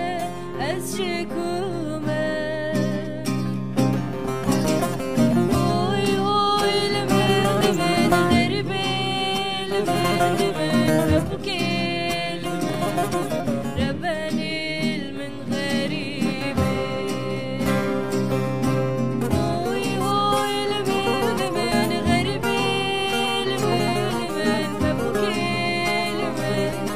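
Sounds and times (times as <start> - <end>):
acoustic guitar: 0.0 - 26.9
plucked long-necked lute: 0.0 - 26.9
woman singing: 0.0 - 26.9.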